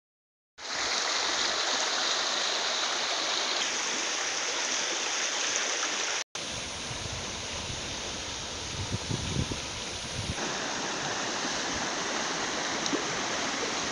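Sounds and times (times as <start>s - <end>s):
creek water flowing over stones: 0.6s - 13.9s.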